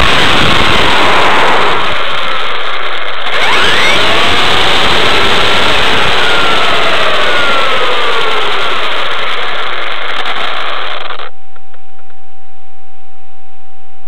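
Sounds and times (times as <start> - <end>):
rushing noise of tyres and chassis: 0.0 - 11.4
electric motor whine: 0.0 - 12.1.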